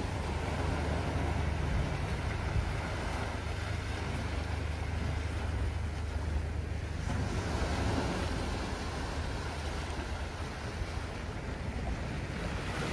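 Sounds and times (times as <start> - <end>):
sea waves washing over rocks: 0.0 - 12.9
wind rumble on microphone: 0.0 - 12.9.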